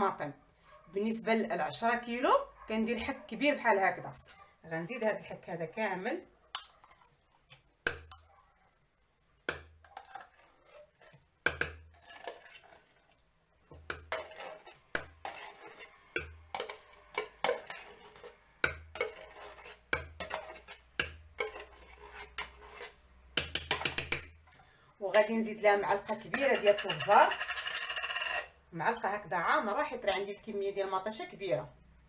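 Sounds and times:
spoon knocking in tin can: 9.5 - 10.0, 11.4 - 11.9, 13.7 - 14.3, 16.1 - 17.9, 18.6 - 19.2, 19.8 - 21.7, 23.4 - 24.4, 25.9 - 28.5
spoon scraping tin can: 9.5 - 24.3, 25.2 - 28.6.

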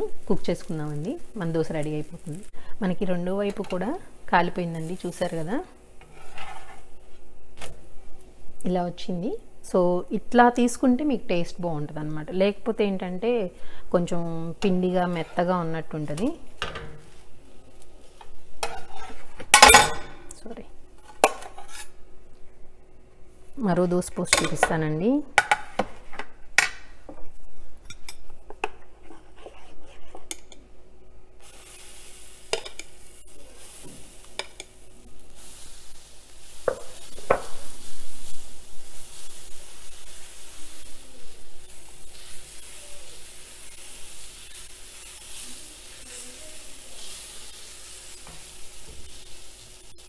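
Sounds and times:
batter sizzling on hot pan: 0.0 - 8.5, 13.4 - 20.0, 21.0 - 22.1, 31.4 - 50.0
metal ladle scraping pan: 6.0 - 6.9, 18.6 - 20.0, 21.4 - 22.0.

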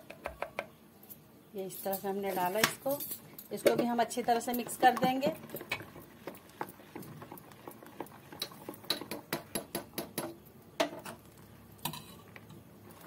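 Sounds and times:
spoon stirring thick batter: 3.6 - 10.4.

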